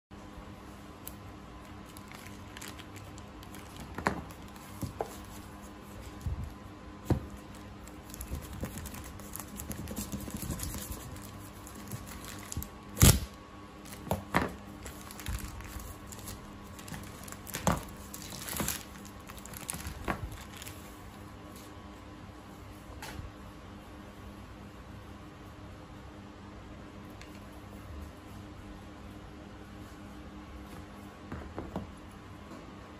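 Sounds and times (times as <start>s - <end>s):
faint steady hum: 0.1s - 32.9s
plastic crinkling and tearing: 1.0s - 5.4s, 7.3s - 21.0s.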